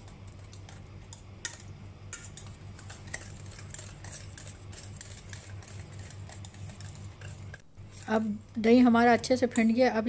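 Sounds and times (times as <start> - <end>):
low steady hum: 0.0 - 10.0
whisk scraping metal bowl: 1.4 - 8.2.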